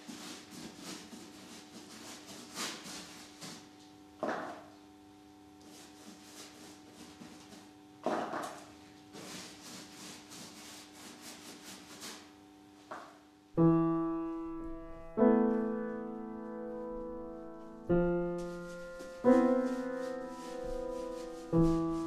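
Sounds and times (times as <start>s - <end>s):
paintbrush scrubbing on canvas: 0.0s - 3.8s, 5.6s - 7.8s, 8.5s - 12.6s, 16.3s - 22.0s
slow piano chords: 13.6s - 22.0s.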